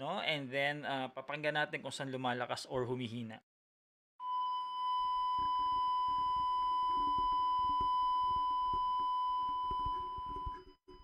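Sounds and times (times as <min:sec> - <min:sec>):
long steady electronic beep: 0:04.2 - 0:11.0.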